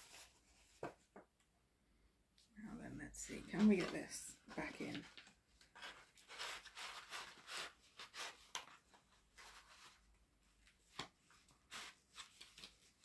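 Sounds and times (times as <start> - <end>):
packaging rustling and scraping: 3.3 - 13.0.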